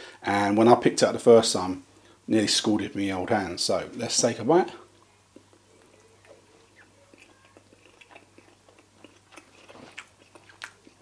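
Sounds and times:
faint chewing with mouth clicks: 0:04.9 - 0:11.0.

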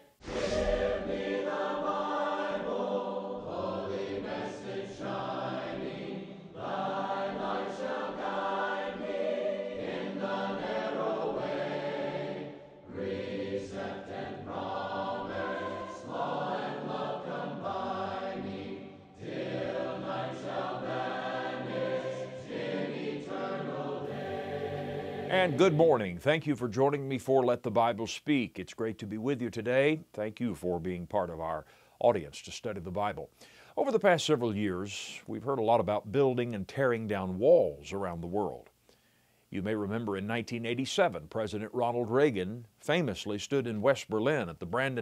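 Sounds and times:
choir singing a cappella: 0:00.2 - 0:26.0.

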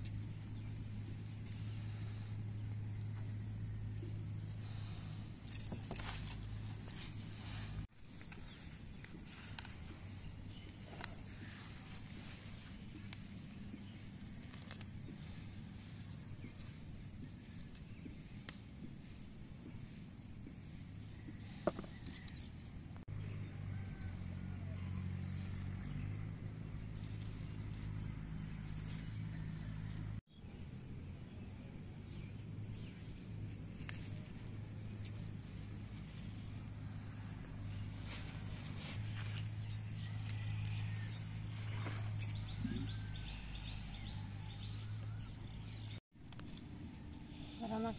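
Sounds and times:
steady low hum: 0:00.0 - 0:23.8
insect chirps: 0:00.0 - 0:47.9.

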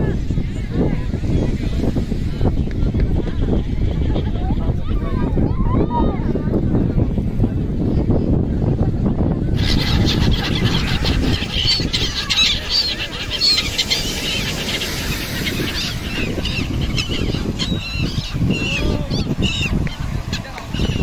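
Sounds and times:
gulls squawking: 0:09.6 - 0:21.0.

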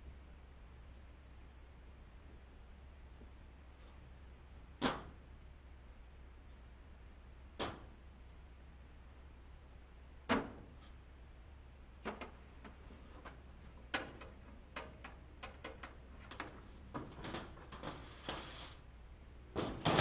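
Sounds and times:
metal shed doors rattling: 0:12.0 - 0:18.7, 0:19.5 - 0:20.0.

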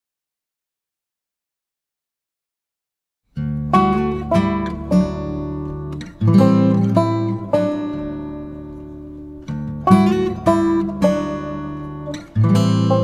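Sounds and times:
acoustic guitar chords: 0:03.3 - 0:13.0.

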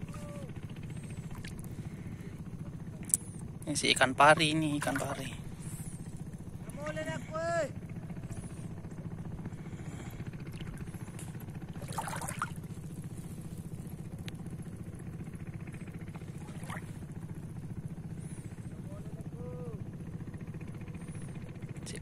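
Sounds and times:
low engine drone: 0:00.0 - 0:22.0
water splash: 0:11.8 - 0:12.6.

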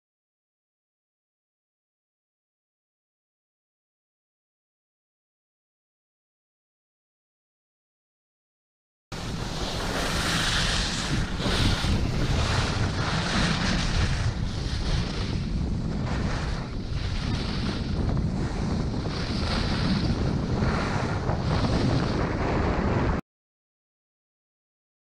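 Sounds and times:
wind on microphone: 0:09.1 - 0:23.2
skis carving on snow: 0:09.2 - 0:23.2.

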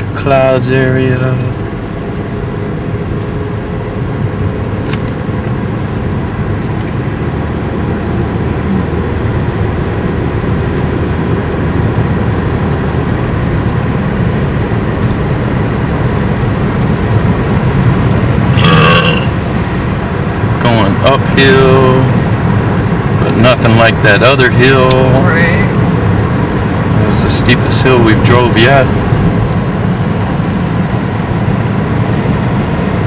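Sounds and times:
car road and engine rumble: 0:00.0 - 0:33.0
tyre roar: 0:18.4 - 0:19.4.

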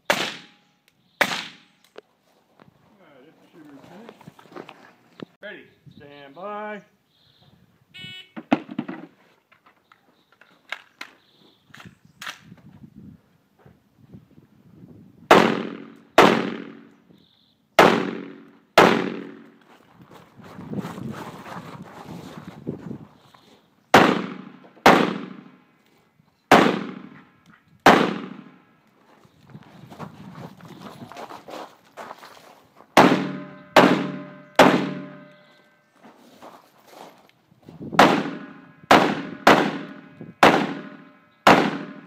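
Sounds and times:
rifle shots with ringing echo: 0:00.0 - 0:01.7, 0:15.3 - 0:16.9, 0:17.8 - 0:19.5, 0:23.9 - 0:25.6, 0:26.5 - 0:28.6, 0:33.0 - 0:35.5, 0:38.0 - 0:42.0.

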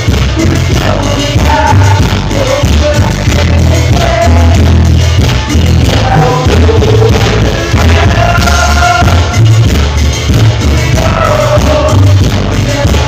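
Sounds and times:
person singing: 0:00.0 - 0:09.6, 0:10.6 - 0:13.0
heavy pulsing bass beat: 0:00.0 - 0:13.0
live band through sound system: 0:00.0 - 0:13.0.

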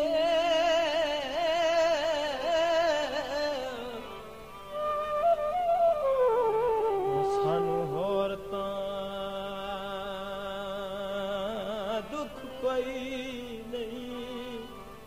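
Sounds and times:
slow folk melody: 0:00.0 - 0:15.0
person singing verses: 0:06.8 - 0:15.0.

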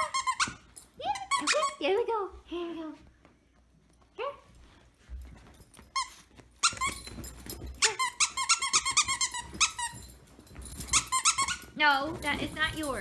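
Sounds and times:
dog squeaker toy squeaking: 0:00.0 - 0:01.8, 0:05.9 - 0:11.8.

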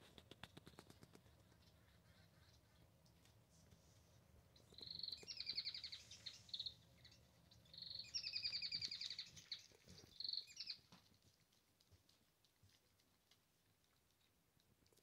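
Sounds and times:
small bird trilling: 0:04.7 - 0:09.6.

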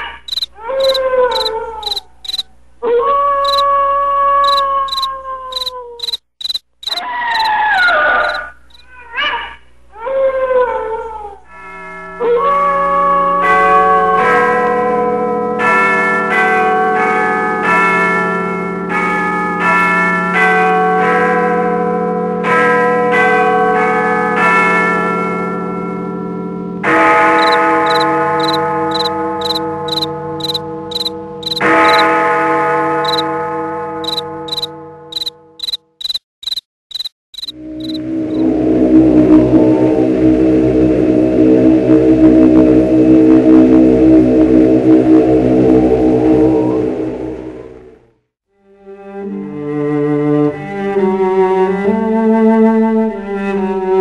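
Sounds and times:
crickets chirping: 0:00.3 - 0:02.4, 0:03.4 - 0:03.6, 0:04.4 - 0:07.5, 0:08.3 - 0:08.8, 0:27.4 - 0:32.0, 0:33.0 - 0:33.2, 0:34.0 - 0:38.4
long howls: 0:02.8 - 0:06.0, 0:07.0 - 0:11.5.

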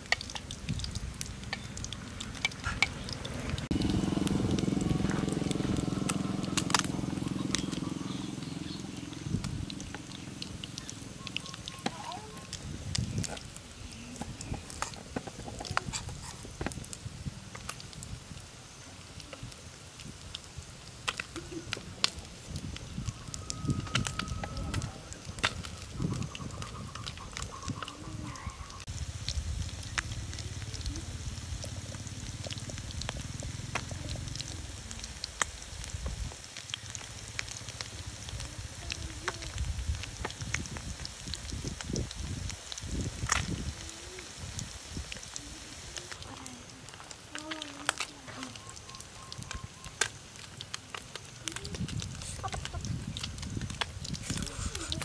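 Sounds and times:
low steady rumble: 0:00.0 - 0:36.3
fish frying in oil: 0:00.0 - 0:55.0
sharp pops and crackles: 0:00.0 - 0:55.0.

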